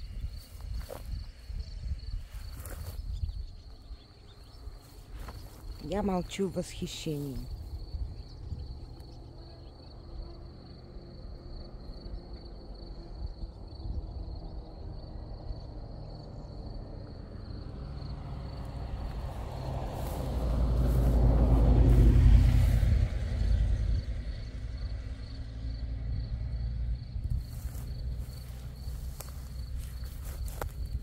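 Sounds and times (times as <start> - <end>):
crickets chirping: 0.0 - 31.0
motor vehicle passing: 17.3 - 31.0.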